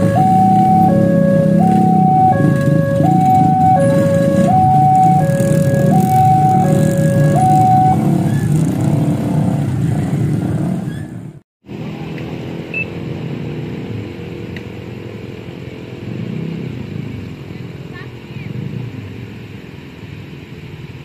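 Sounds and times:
two-tone crossing alarm: 0.0s - 8.4s
motorcycle engines revving: 0.0s - 21.0s.

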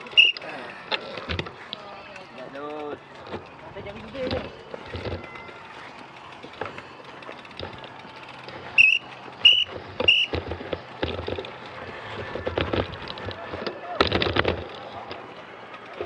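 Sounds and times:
short high-pitched squeaks: 0.0s - 0.4s, 8.6s - 10.4s
bikes clicking and rattling: 0.0s - 16.0s.

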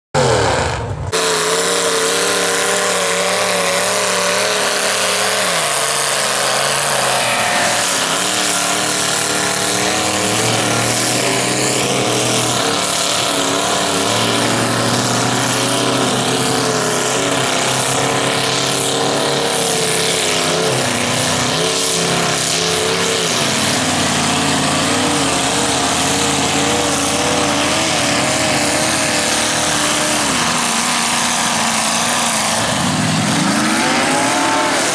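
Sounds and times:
truck engines revving: 0.1s - 34.9s.

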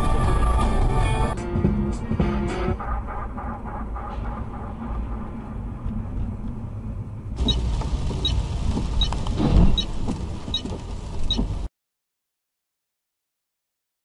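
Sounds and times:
car engine and road noise: 0.0s - 11.7s
regular ticking: 7.4s - 11.6s.

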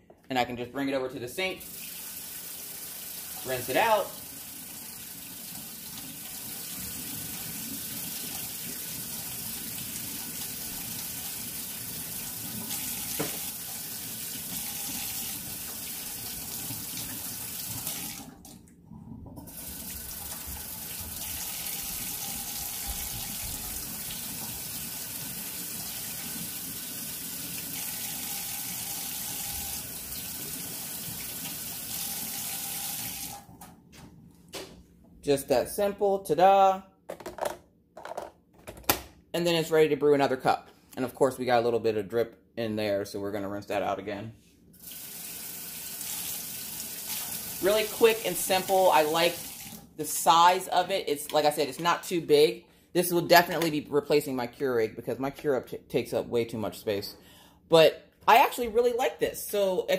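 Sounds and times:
faucet running: 1.6s - 18.7s, 19.4s - 33.5s, 44.8s - 50.5s.

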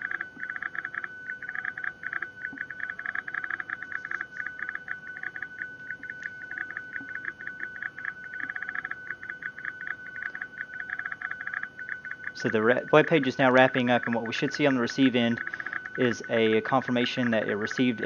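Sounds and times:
stuttering digital radio tone: 11.0s - 18.0s.

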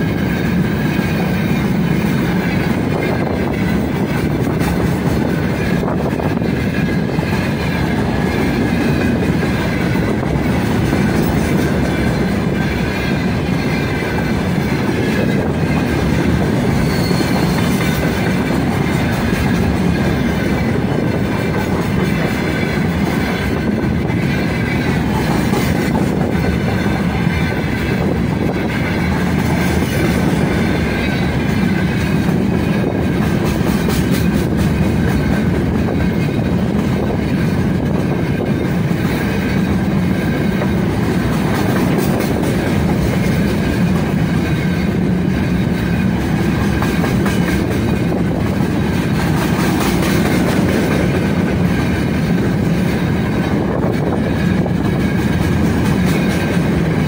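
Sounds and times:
train wheels rumbling on rails: 0.0s - 57.0s
high steady squeal: 11.0s - 18.3s.

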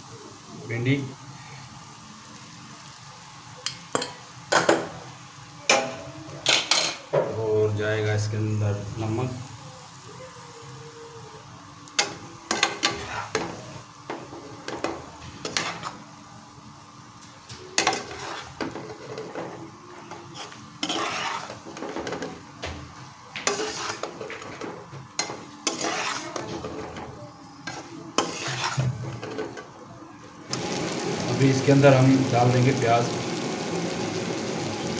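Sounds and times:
faint frying sizzle: 0.0s - 34.9s
metal spatula scraping pan: 12.5s - 13.6s, 15.4s - 16.0s, 17.8s - 22.3s, 23.4s - 29.6s.

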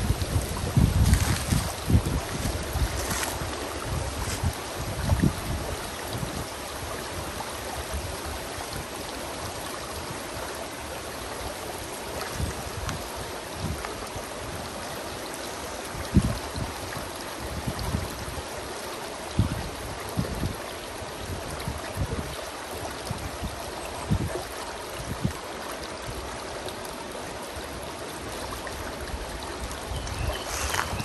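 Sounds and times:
creek babbling over rocks: 0.0s - 31.0s.

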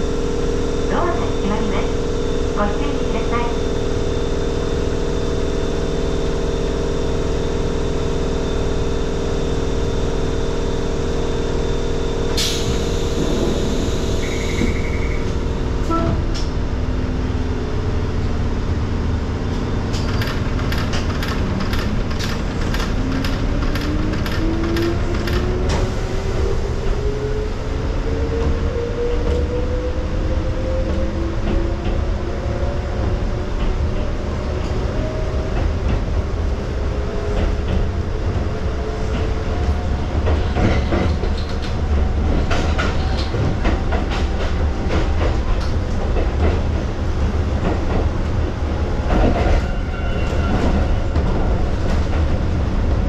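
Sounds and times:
train motor whine: 0.0s - 16.8s
electric train humming: 0.0s - 53.0s
short buzzer tone: 12.8s - 15.3s
wheels clicking over rail joints: 19.9s - 25.8s.

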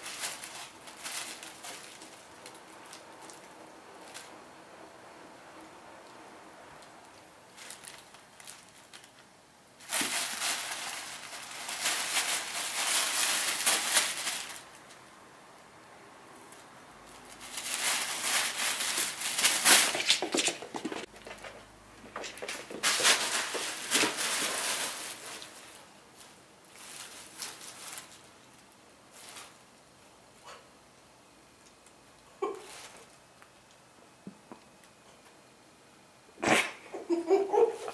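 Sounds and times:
tissue paper rustling: 0.0s - 4.4s, 7.5s - 9.2s, 9.8s - 14.8s, 16.5s - 29.7s.

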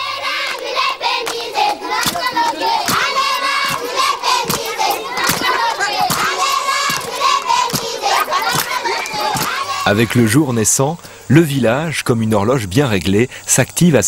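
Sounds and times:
children shouting and chanting: 0.0s - 11.0s
hand claps on a beat: 0.4s - 10.2s.

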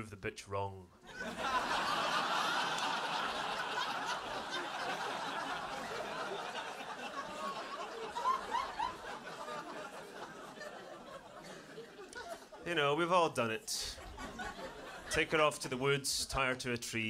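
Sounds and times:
large audience laughing: 1.0s - 12.6s, 13.8s - 15.8s.

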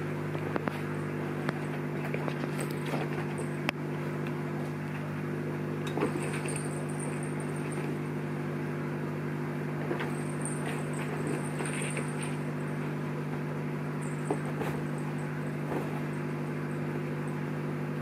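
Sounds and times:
low mechanical hum: 0.0s - 18.0s
kittens tapping and rustling: 5.9s - 8.0s, 9.8s - 12.7s, 14.0s - 16.4s.

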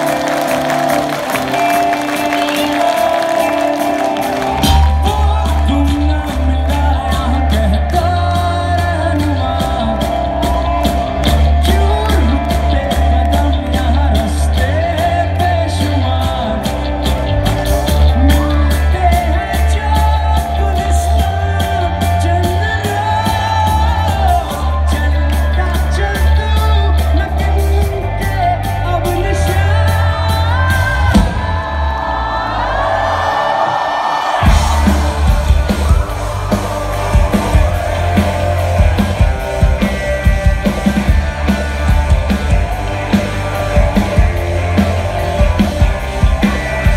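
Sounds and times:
drum beat: 0.0s - 15.8s, 34.4s - 46.9s
bass guitar: 0.0s - 46.9s
electric guitar: 0.0s - 46.9s
man singing: 1.5s - 32.0s.

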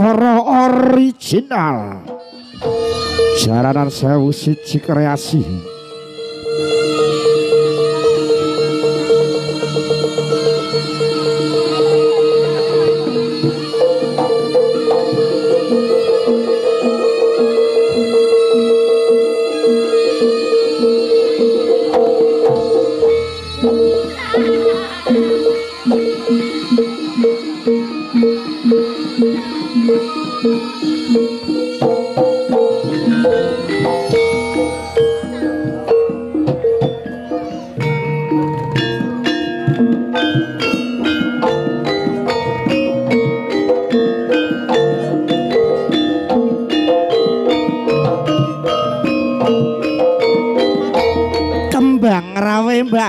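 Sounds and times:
drums: 0.0s - 4.3s, 6.3s - 53.0s
pitched percussion two-note figure: 0.0s - 5.8s, 19.7s - 53.0s
gamelan metal keys struck with mallets: 21.3s - 53.0s.

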